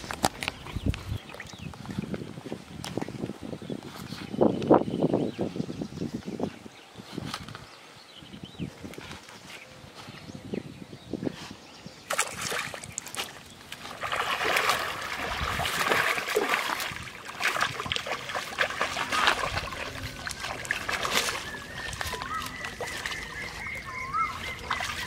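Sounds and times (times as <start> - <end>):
fish splashing in water: 12.1 - 25.0.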